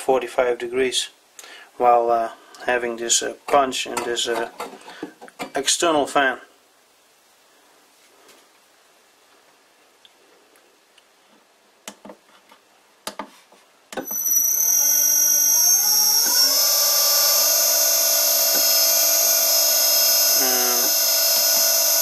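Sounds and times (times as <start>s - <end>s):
high-pitched drive whine: 14.0s - 22.0s
motor hum: 14.0s - 22.0s.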